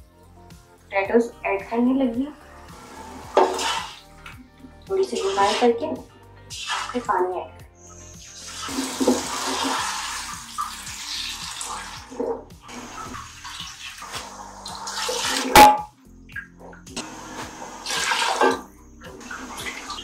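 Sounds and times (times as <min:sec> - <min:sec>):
ladle stirring: 0:02.9 - 0:04.3
water splashing into pot: 0:03.0 - 0:04.4, 0:06.5 - 0:07.1, 0:08.2 - 0:15.9, 0:17.8 - 0:20.0.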